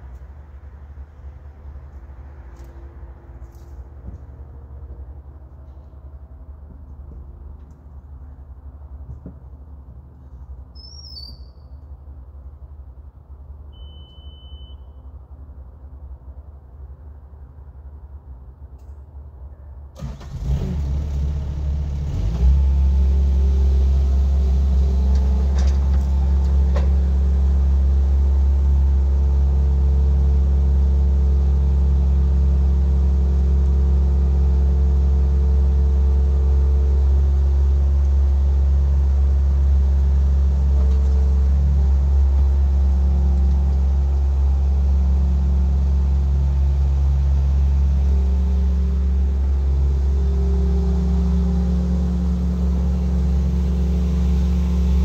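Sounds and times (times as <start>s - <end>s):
tractor engine humming: 20.0s - 55.0s.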